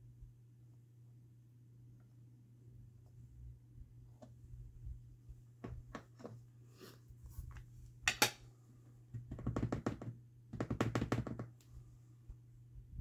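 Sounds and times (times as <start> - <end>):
rubber stamps tapping: 9.1 - 11.6.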